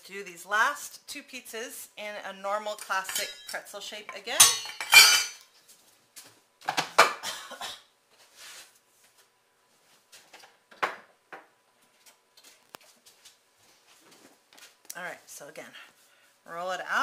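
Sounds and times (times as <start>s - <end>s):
utensils and dishes clattering: 2.8s - 3.7s, 4.4s - 5.4s.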